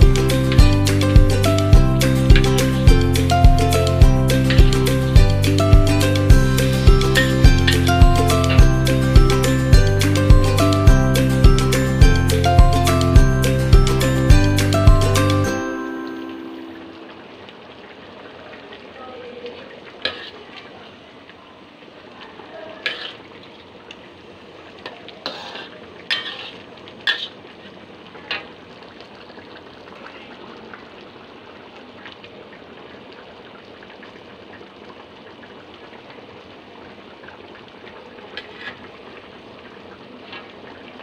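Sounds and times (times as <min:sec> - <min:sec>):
curry bubbling in a wok: 0:17.3 - 0:41.0
metal spatula scraping pan: 0:20.0 - 0:20.4, 0:22.8 - 0:23.3, 0:25.2 - 0:27.4.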